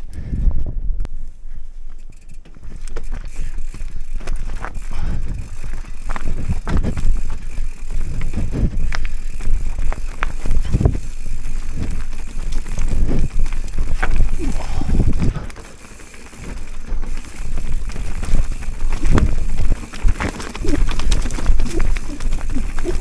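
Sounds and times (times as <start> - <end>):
bike tyres rumbling over dirt: 1.5 - 23.0.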